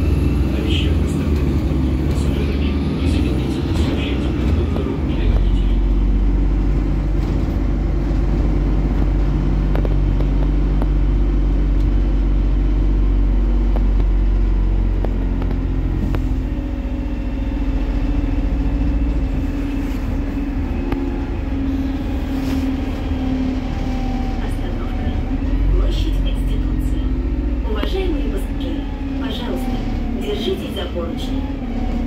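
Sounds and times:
bus engine running noise: 0.0 - 32.0.

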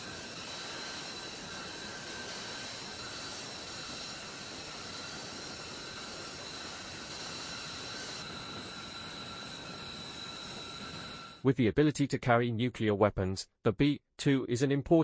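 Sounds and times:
machinery rushing hiss and whine: 0.0 - 11.5.

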